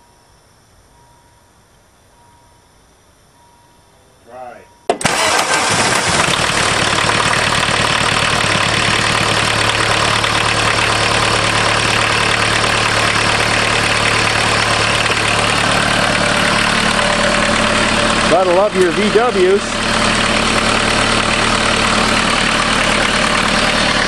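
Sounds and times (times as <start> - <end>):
diesel engine starting and idling: 4.8 - 24.0.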